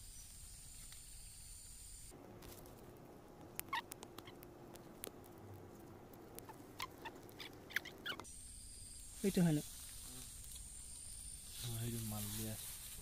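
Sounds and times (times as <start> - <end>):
straw crackling and popping: 2.3 - 9.1.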